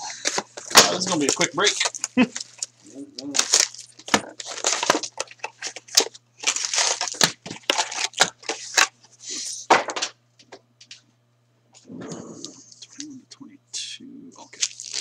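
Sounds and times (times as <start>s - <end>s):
card box tearing open: 3.3s - 8.9s.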